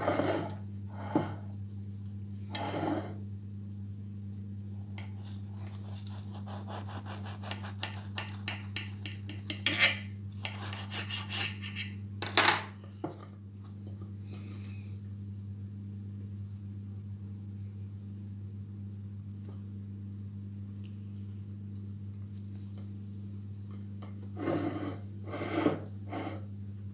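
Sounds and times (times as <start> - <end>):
knife scraping on glass plate: 0.0 - 1.4, 2.5 - 3.2, 6.8 - 12.0, 24.4 - 26.5
steady low hum: 0.0 - 26.9
knife sawing through bread crust: 5.2 - 8.7, 9.6 - 12.0, 24.4 - 26.4.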